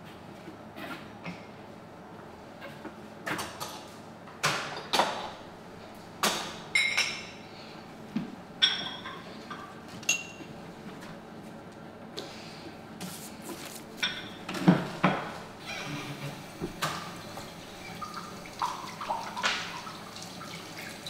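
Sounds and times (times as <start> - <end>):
dishes and glass clinking: 8.6 - 10.5.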